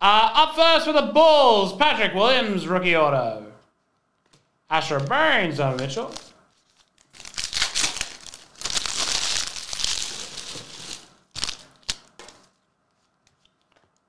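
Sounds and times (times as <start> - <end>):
wrapper tearing and crinkling: 5.7 - 12.6.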